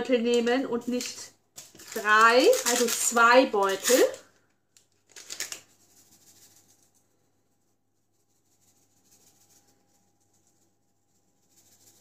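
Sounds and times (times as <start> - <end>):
sugar shaken out of sachet: 0.8 - 4.3, 5.0 - 7.2, 8.1 - 12.0
paper sachet rustling and tearing: 0.9 - 5.9.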